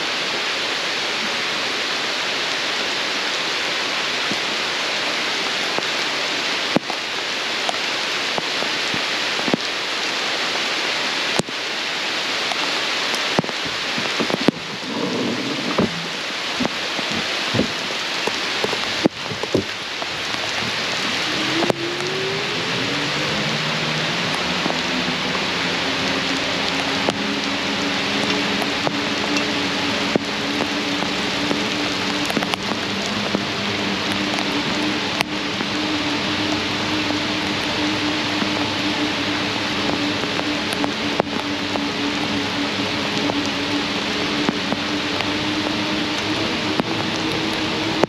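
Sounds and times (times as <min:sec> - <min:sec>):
rain hissing: 0:00.0 - 0:48.0
rising whine: 0:12.5 - 0:48.0.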